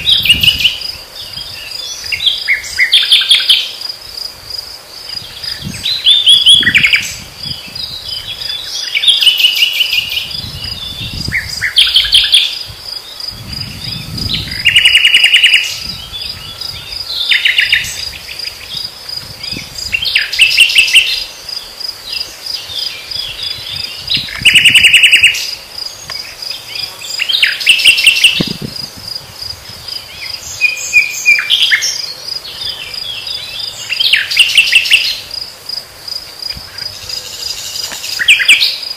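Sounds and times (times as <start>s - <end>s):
nightingale singing: 0.0s - 4.0s, 5.0s - 35.4s, 36.1s - 38.9s
crickets chirping: 0.0s - 38.9s.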